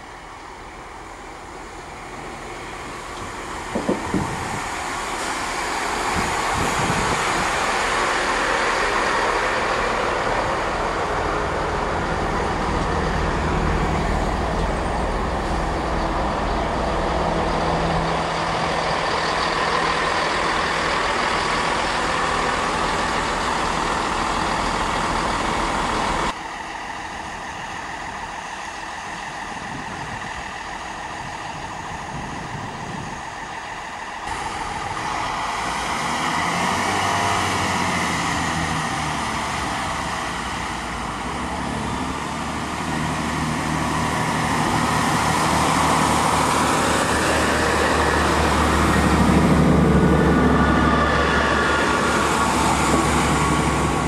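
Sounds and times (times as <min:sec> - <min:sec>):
diesel train engine drone: 0:00.0 - 0:54.0
train wheel noise: 0:00.0 - 0:54.0.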